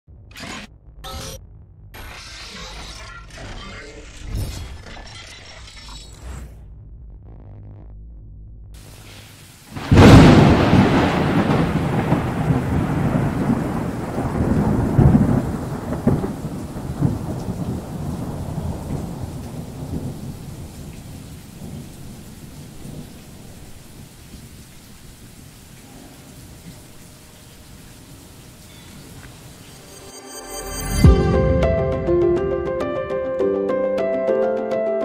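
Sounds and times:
thunder crack and rumble: 0:06.7 - 0:29.6.

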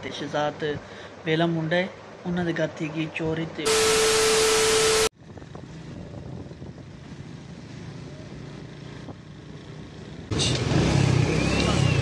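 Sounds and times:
road traffic noise: 0:03.6 - 0:12.0
steady tone: 0:03.7 - 0:05.1
tv static glitch burst: 0:03.7 - 0:05.1.

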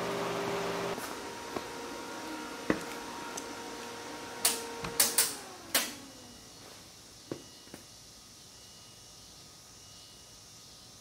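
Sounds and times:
electric cooling fan spinning down: 0:00.0 - 0:06.6.

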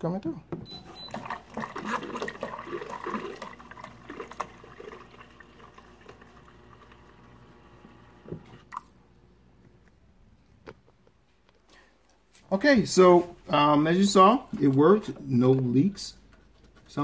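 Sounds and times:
water running into plastic cup: 0:01.0 - 0:09.0.

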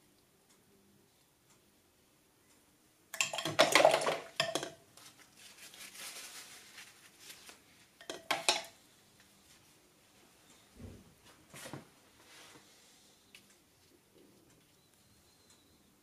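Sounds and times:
soft scratching: 0:05.0 - 0:08.0
paintbrush clinking on ceramic: 0:08.0 - 0:08.8.

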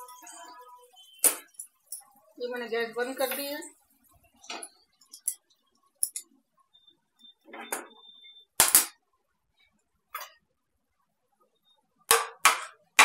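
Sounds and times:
utensils clinking: 0:04.4 - 0:06.4.

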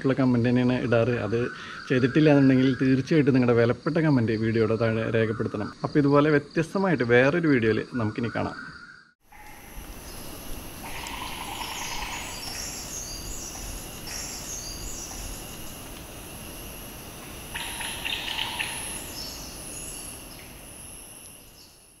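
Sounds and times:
birds calling: 0:08.2 - 0:15.8, 0:17.5 - 0:20.6
high-pitched insect drone: 0:08.4 - 0:22.0.

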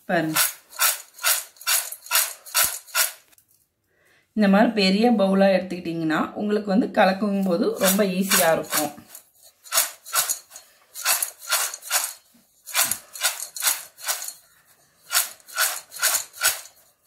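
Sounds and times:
beans rattling in steel bowl: 0:00.0 - 0:03.4, 0:07.4 - 0:17.0.

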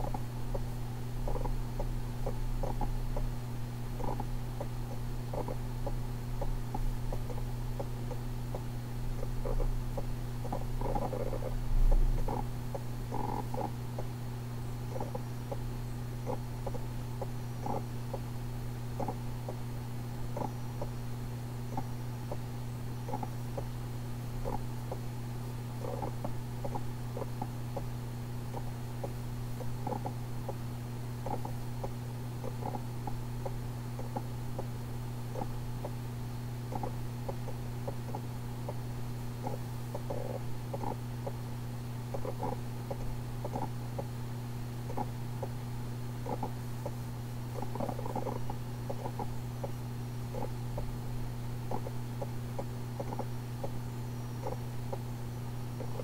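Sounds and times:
toy mechanism humming: 0:46.2 - 0:50.9, 0:51.7 - 0:55.1.

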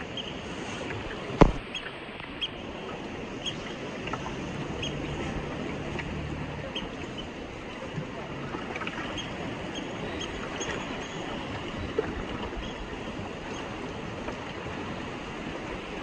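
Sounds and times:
sea water washing around boat: 0:00.0 - 0:16.0
sharp knock: 0:01.4 - 0:01.6.

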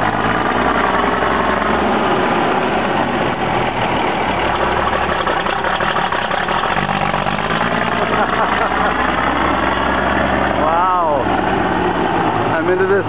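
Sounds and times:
truck engine running: 0:00.0 - 0:13.0
tyres rolling on gravel: 0:02.6 - 0:13.0.

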